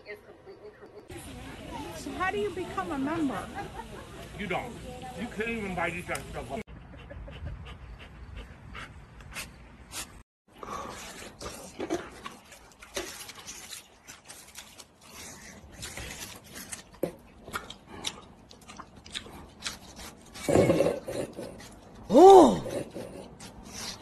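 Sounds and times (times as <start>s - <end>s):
watermelon crunching and chewing: 10.6s - 24.0s.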